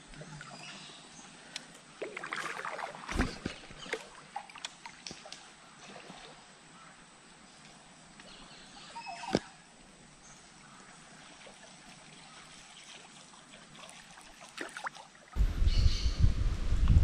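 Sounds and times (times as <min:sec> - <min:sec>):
river water lapping: 0:00.0 - 0:07.1, 0:09.7 - 0:15.4.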